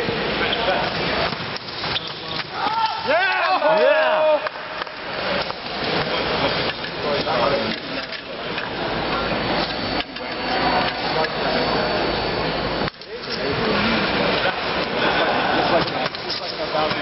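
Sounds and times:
crowd chatter in a large hall: 0:00.0 - 0:17.0.

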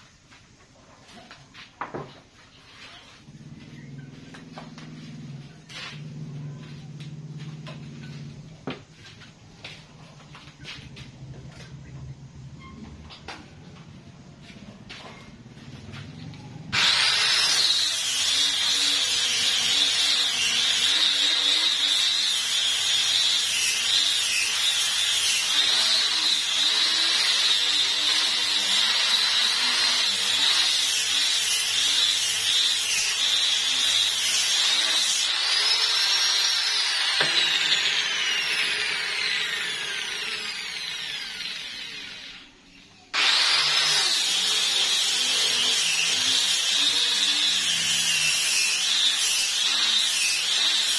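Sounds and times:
electric disc sander on wood: 0:16.8 - 0:42.4, 0:43.2 - 0:50.9.

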